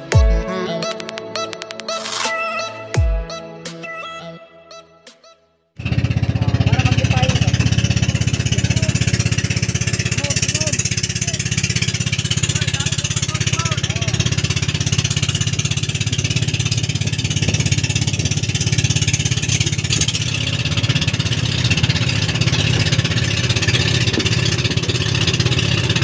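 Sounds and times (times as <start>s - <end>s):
boat engine droning: 5.8s - 26.0s.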